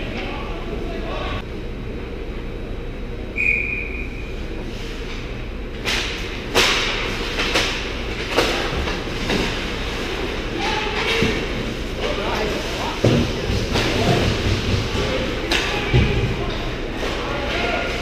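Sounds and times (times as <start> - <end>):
arena low hum: 0.0 - 18.0
short high whistle blast: 3.4 - 4.2
hockey sticks clacking on ice: 5.8 - 18.0.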